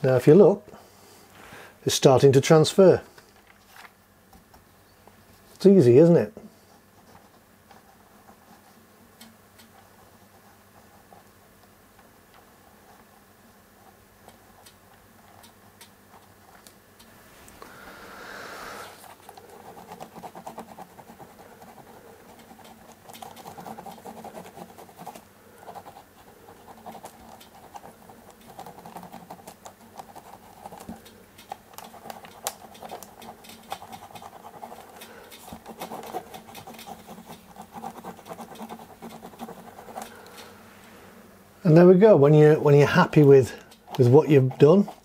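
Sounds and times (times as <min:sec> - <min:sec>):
pen scratching on paper: 0:19.0 - 0:40.4, 0:43.8 - 0:45.0.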